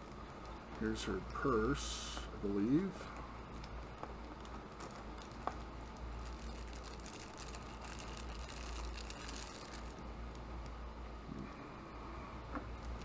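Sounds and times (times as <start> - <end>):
steady low hum: 0.0 - 13.0
plastic wrapper rustling and clicking: 3.1 - 10.8.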